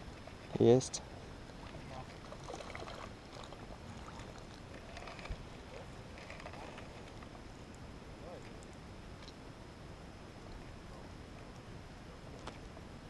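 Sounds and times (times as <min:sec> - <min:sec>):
water splashing: 0:01.5 - 0:07.2.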